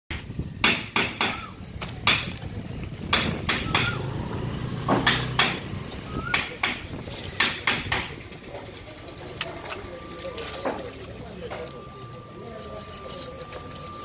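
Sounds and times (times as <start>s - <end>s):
low background murmur: 0.3s - 14.0s
sharp clicks and knocks: 4.9s - 5.7s, 6.3s - 8.4s.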